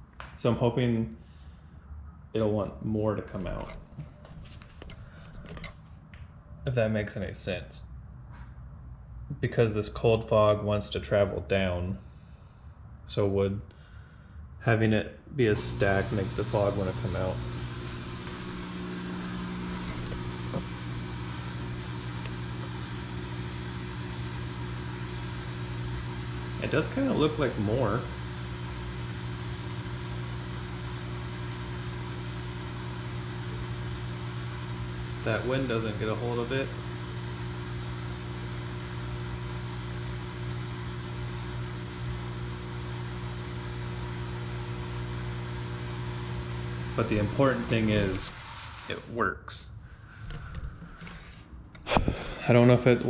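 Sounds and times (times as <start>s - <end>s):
fog machine electric buzz: 15.4s - 49.1s.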